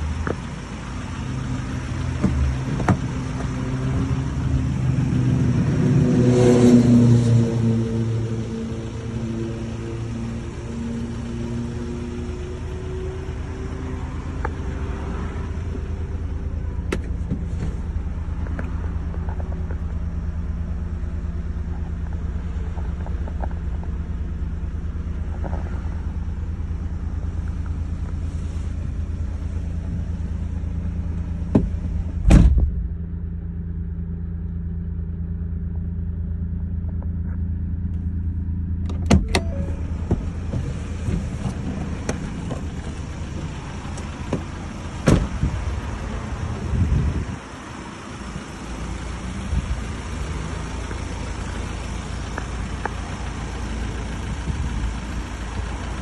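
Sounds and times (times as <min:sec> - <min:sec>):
diesel engine idling: 0:00.0 - 0:56.0
heavy thump: 0:31.4 - 0:33.2, 0:44.3 - 0:45.5.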